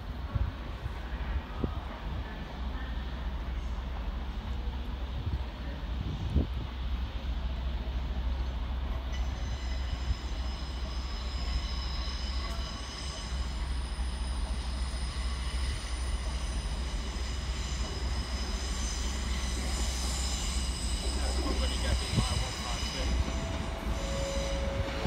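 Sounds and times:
train wheels squealing: 0:07.1 - 0:25.0.

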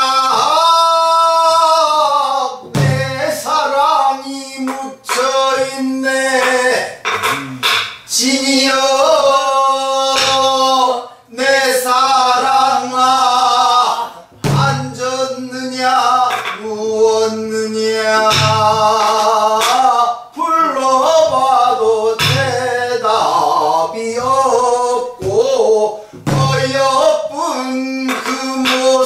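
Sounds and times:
man singing folk song: 0:00.0 - 0:29.0
barrel drum strokes: 0:07.0 - 0:08.0, 0:14.3 - 0:15.0, 0:18.2 - 0:19.7, 0:26.2 - 0:26.9.

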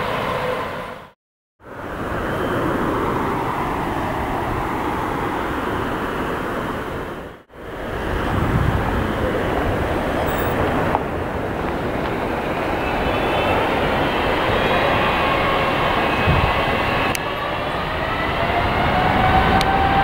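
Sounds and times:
faint jet whine: 0:00.0 - 0:20.0
jet engine rumble and hiss: 0:00.0 - 0:20.0.

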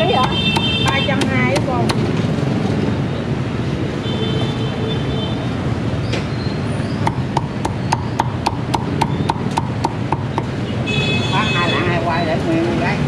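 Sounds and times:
steady background noise: 0:00.0 - 0:13.0
cleaver chopping on wooden block: 0:00.1 - 0:02.1, 0:07.0 - 0:10.6.

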